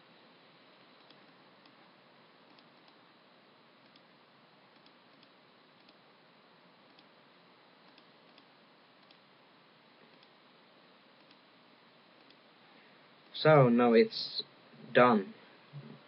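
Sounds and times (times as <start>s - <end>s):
computer mouse clicks: 1.0s - 3.0s, 3.8s - 4.1s, 4.7s - 6.0s, 6.8s - 7.1s, 7.8s - 9.2s, 10.0s - 10.4s, 11.2s - 11.4s, 12.2s - 12.4s.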